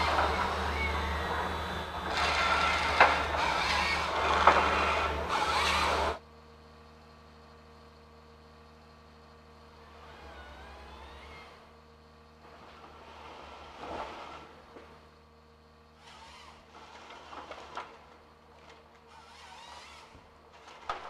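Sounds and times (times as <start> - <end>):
distant hum: 0.0 - 6.2
diesel engine running: 0.0 - 21.0.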